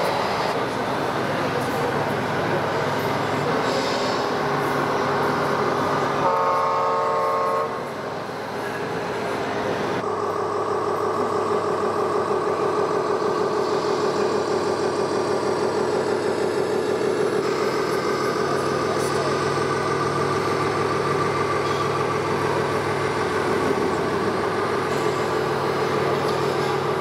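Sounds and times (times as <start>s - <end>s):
simulated diesel engine sound: 0.0s - 27.0s
toy truck horn blast: 6.2s - 7.8s.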